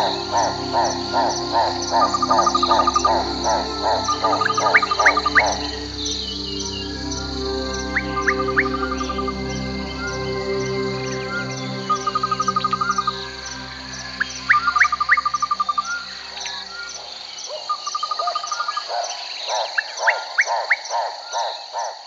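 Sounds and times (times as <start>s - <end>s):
high insect buzz: 0.0s - 17.6s
soft musical drone: 0.0s - 17.7s
frogs trilling and croaking: 0.0s - 22.0s.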